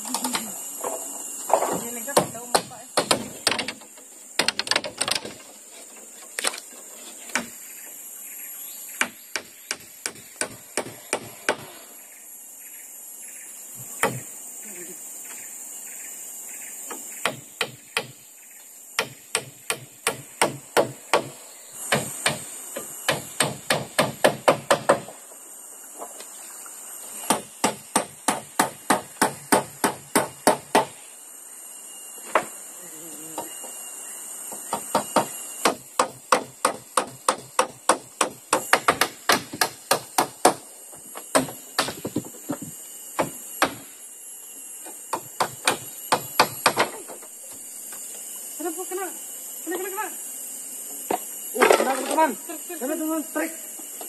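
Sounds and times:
hammer driving nails: 0:34.7 - 0:40.6.

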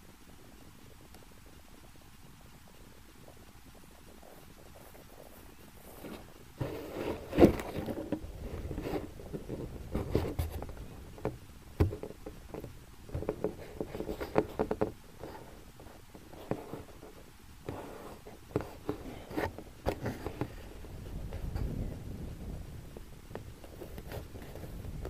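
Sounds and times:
knocks and scraping on camera: 0:04.8 - 0:22.0, 0:23.3 - 0:25.0.

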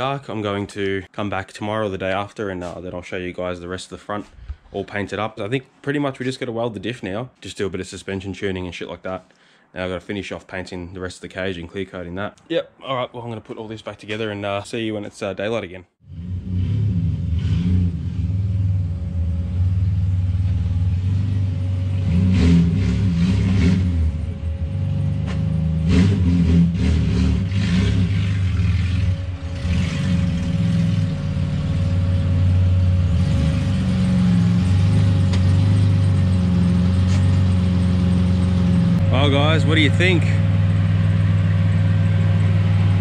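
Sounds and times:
car engine revving: 0:16.0 - 0:43.0.

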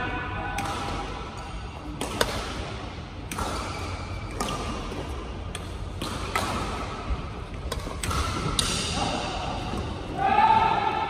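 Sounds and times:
rackets hitting shuttlecock: 0:00.5 - 0:09.1.

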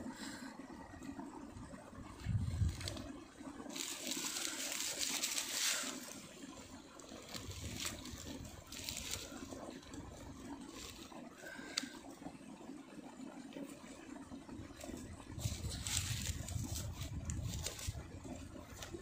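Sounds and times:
dry grass rustling: 0:02.1 - 0:12.0, 0:14.5 - 0:19.0.

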